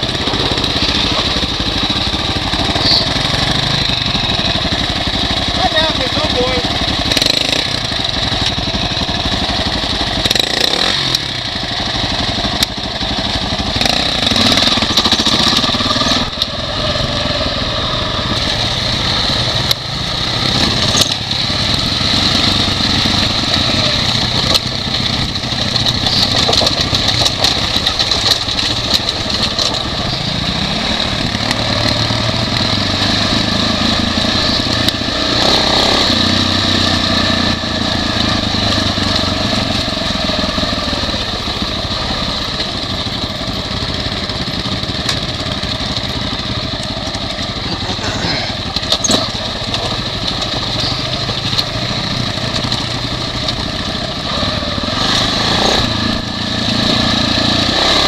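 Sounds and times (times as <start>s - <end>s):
motorcycle engine revving: 0.0s - 58.0s
bike knocks and rattles: 24.3s - 30.2s, 44.0s - 53.8s.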